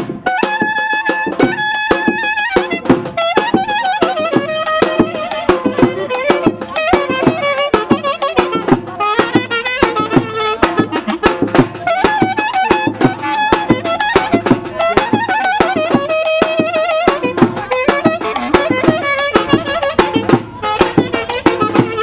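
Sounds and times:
steady drum beat: 0:00.0 - 0:22.0
clarinet playing trills: 0:00.2 - 0:22.0.

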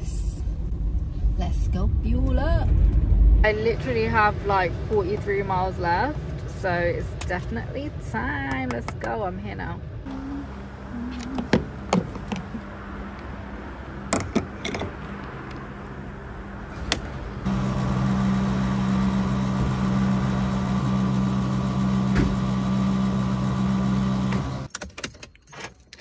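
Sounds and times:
fuel pump motor humming: 0:10.0 - 0:15.6, 0:16.7 - 0:24.7.

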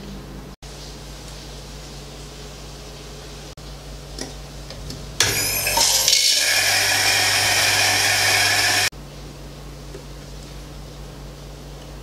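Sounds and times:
electric coffee grinder grinding: 0:05.2 - 0:08.9.

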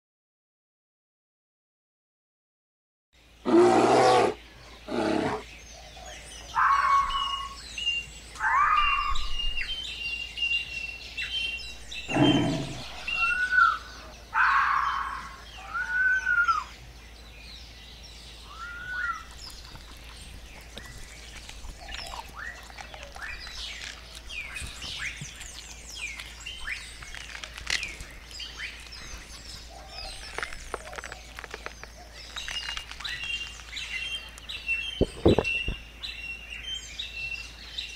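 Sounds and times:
songbirds chirping and whistling: 0:03.2 - 0:37.9
deep growls: 0:03.4 - 0:05.5, 0:11.8 - 0:13.6.

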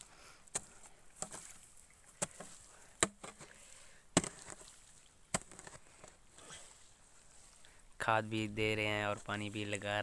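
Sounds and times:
hoe chopping into wet mud: 0:00.5 - 0:01.5, 0:02.2 - 0:03.5, 0:04.1 - 0:04.7, 0:05.3 - 0:05.8.

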